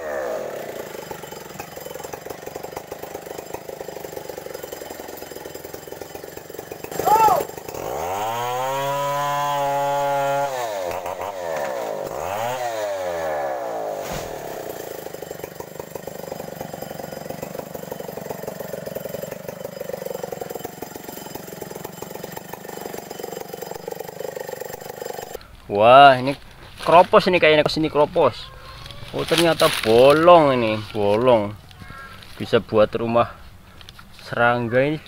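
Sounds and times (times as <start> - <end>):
chainsaw revving and cutting: 0.0 - 25.4, 29.1 - 31.4.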